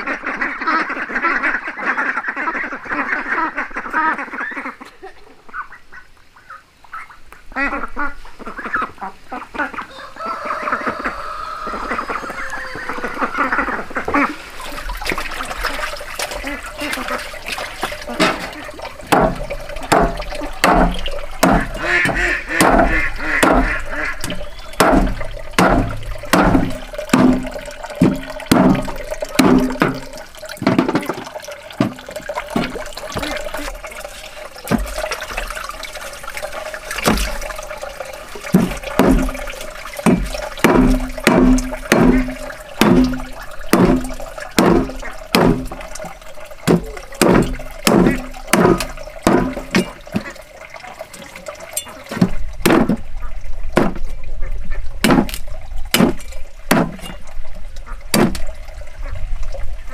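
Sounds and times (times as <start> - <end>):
water running into plastic basin: 7.6 - 59.9
cleaver chopping meat on wood: 19.1 - 23.7, 24.3 - 27.4, 44.6 - 45.6, 55.0 - 55.4, 56.0 - 57.0, 58.1 - 58.4.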